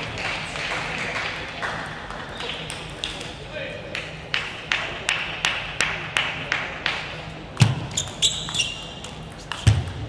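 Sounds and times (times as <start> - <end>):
ball clicking off bats and table: 7.6 - 10.0
table tennis ball bouncing: 7.6 - 10.0
shoes squeaking on floor: 7.9 - 9.0.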